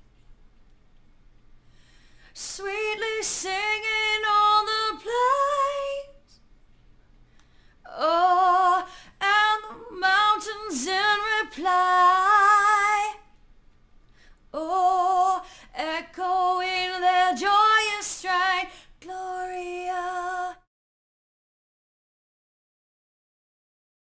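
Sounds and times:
woman singing unaccompanied: 0:02.4 - 0:06.2, 0:07.9 - 0:13.3, 0:14.6 - 0:20.7.

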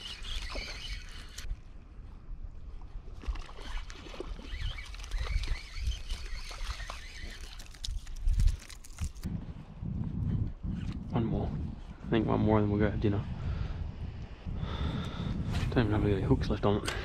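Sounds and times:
small water splashes: 0:03.0 - 0:08.2
fishing reel clicks: 0:04.6 - 0:09.2.

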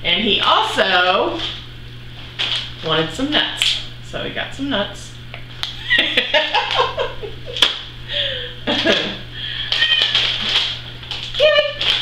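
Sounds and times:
people laughing: 0:05.8 - 0:07.6, 0:08.2 - 0:09.3.

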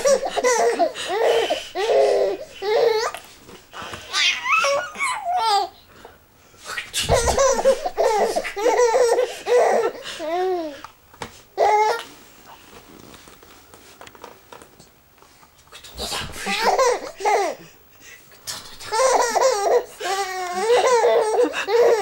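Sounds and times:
baby laughing: 0:00.0 - 0:03.3, 0:04.0 - 0:05.7, 0:07.0 - 0:10.8, 0:16.0 - 0:17.7, 0:18.7 - 0:22.0.

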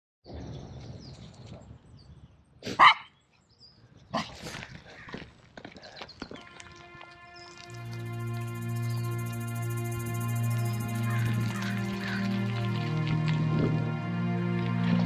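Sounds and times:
dog barking: 0:02.7 - 0:03.1
bicycle tyres on gravel: 0:04.6 - 0:15.0.

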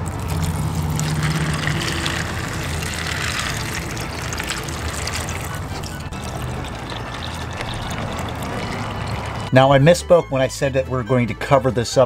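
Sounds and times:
water pouring onto beans: 0:00.0 - 0:09.5
low steady hum: 0:00.0 - 0:09.9.

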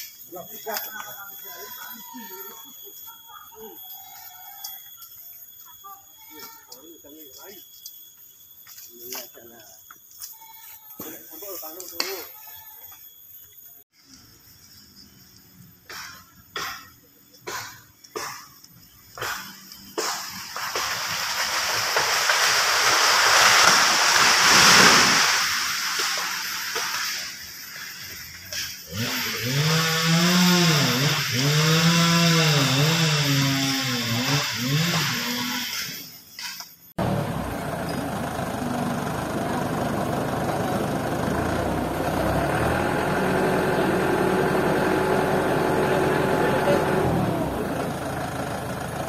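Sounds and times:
engine whine: 0:36.9 - 0:49.0
truck engine running: 0:37.0 - 0:49.0.

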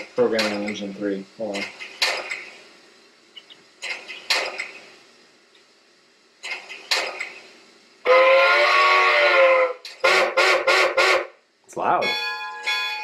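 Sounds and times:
multi-tone steam whistle: 0:08.0 - 0:11.4, 0:12.0 - 0:13.0.

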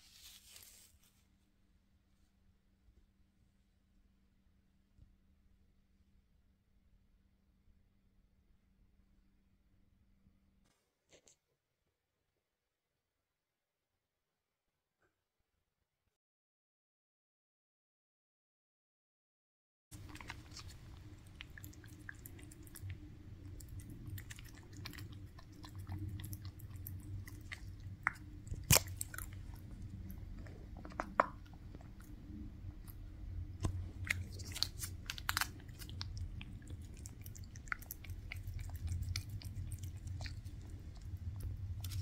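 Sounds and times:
cat crunching treats: 0:20.0 - 0:42.0.

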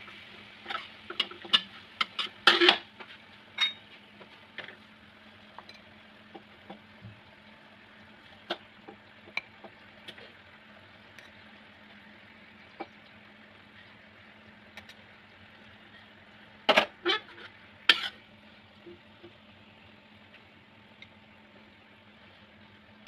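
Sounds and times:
metal spatula scraping in wok: 0:00.6 - 0:02.9, 0:17.0 - 0:18.2.

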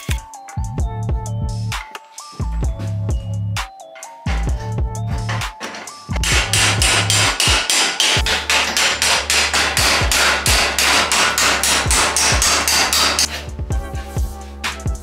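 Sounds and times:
hammer striking metal: 0:05.3 - 0:13.4.

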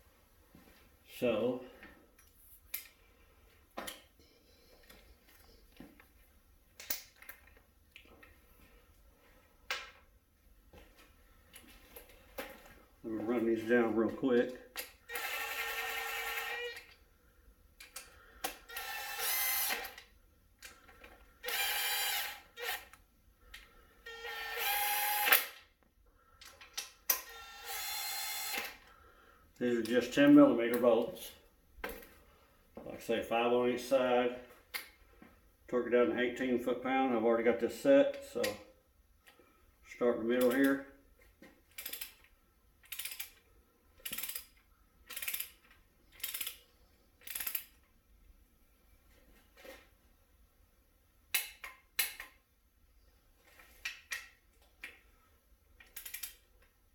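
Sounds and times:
power drill driving bolts: 0:21.4 - 0:22.9
ratcheting wrench clicking: 0:41.7 - 0:43.4, 0:44.0 - 0:46.6, 0:47.2 - 0:47.8, 0:55.8 - 0:56.4.

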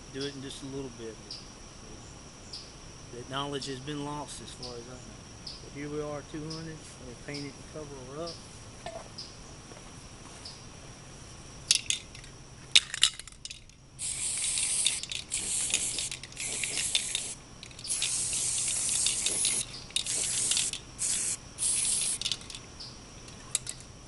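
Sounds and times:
spray paint can hissing: 0:14.0 - 0:22.6.

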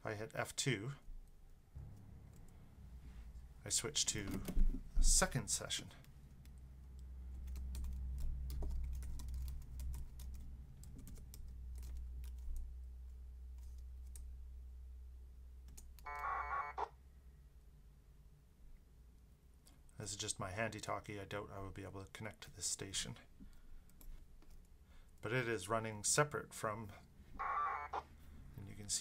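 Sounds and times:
steady low hum: 0:00.9 - 0:20.3
warbling data tones: 0:16.1 - 0:16.9, 0:27.4 - 0:28.0.

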